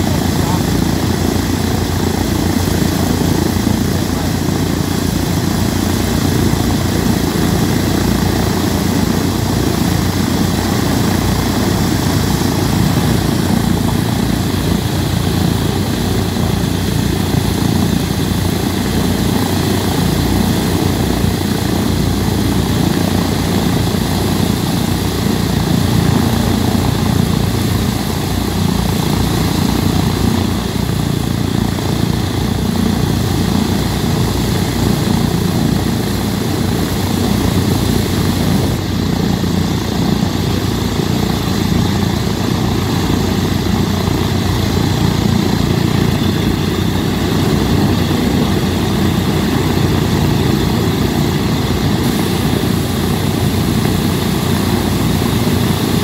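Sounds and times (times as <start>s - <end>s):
propeller engines idling: 0.0s - 56.0s.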